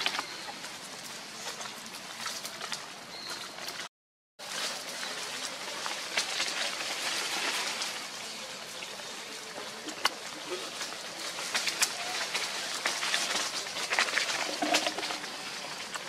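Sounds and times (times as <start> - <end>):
dry leaves rustling and crackling: 0.0 - 16.0
forest hiss: 4.4 - 16.0.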